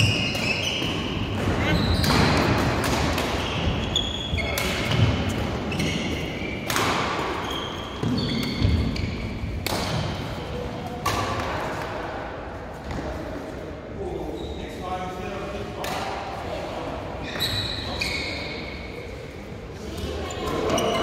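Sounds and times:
shoes squeaking on court: 0.0s - 2.5s, 3.1s - 9.5s, 17.2s - 18.9s
rackets smacking shuttlecocks: 0.0s - 12.0s, 15.8s - 16.3s.

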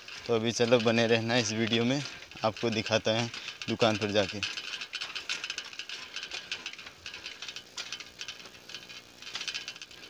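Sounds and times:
bicycle chain clicking and rattling: 0.0s - 10.0s.

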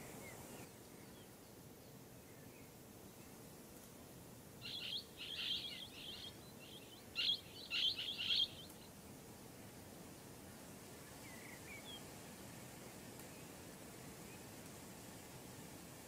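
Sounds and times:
parrot calling: 4.7s - 6.3s, 7.2s - 8.6s.

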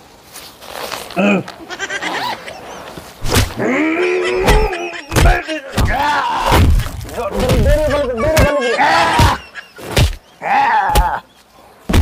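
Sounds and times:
dull thuds: 3.2s - 3.6s, 4.4s - 8.6s
man groaning cry: 3.6s - 6.5s, 7.6s - 9.4s.

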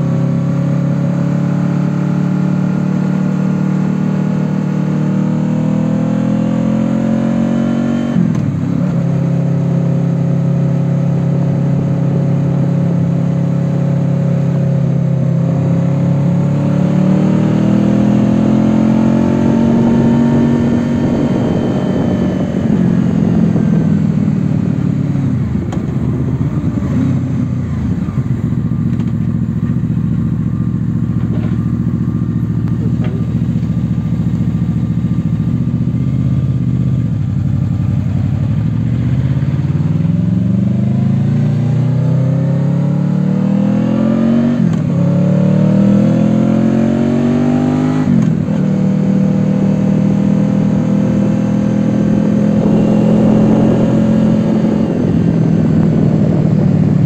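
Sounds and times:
motorcycle engine accelerating: 0.0s - 57.0s
gear upshifts: 52.0s - 57.0s.

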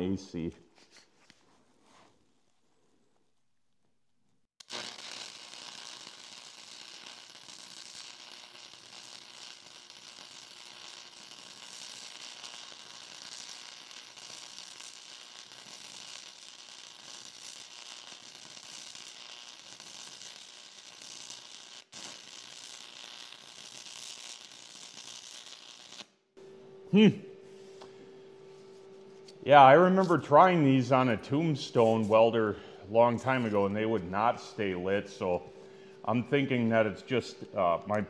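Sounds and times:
welding arc sizzling and crackling: 4.6s - 26.2s, 29.8s - 35.4s.

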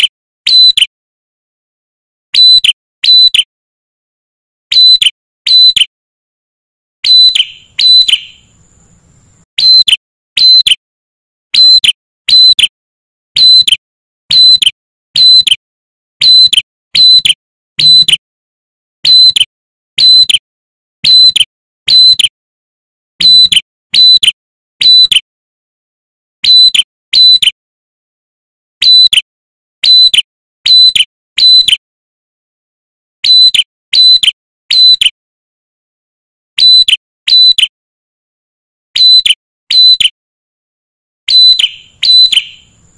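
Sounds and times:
bird singing sharp ringing notes: 0.5s - 0.9s, 2.4s - 3.5s, 4.7s - 5.9s, 7.0s - 10.8s, 13.4s - 14.6s, 15.2s - 15.5s, 16.2s - 18.1s, 19.0s - 19.4s, 21.0s - 22.3s, 23.2s - 24.2s, 24.8s - 25.2s, 33.3s - 35.0s, 36.6s - 37.6s, 39.0s - 40.2s, 41.3s - 42.9s.

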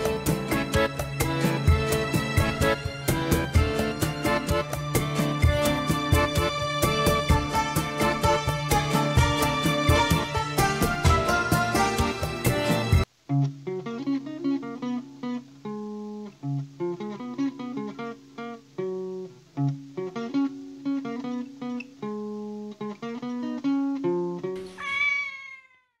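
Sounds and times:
plucked-string tune: 0.0s - 24.6s
cat meowing: 24.6s - 26.0s.

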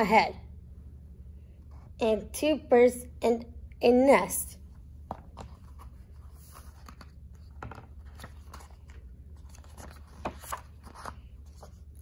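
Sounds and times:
steady low hum: 0.0s - 12.0s
paper pages rustling: 5.2s - 12.0s.

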